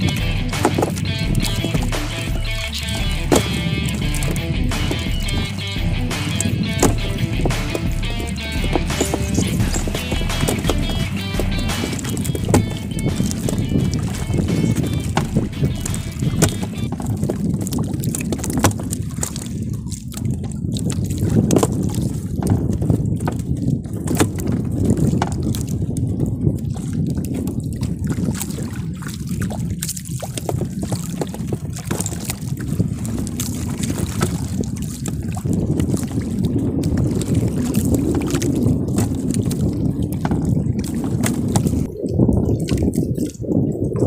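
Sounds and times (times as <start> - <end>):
short knocks and clicks: 0.0 - 5.5, 6.1 - 17.1
waves washing around boat: 0.0 - 44.0
wind buffeting microphone: 0.0 - 44.0.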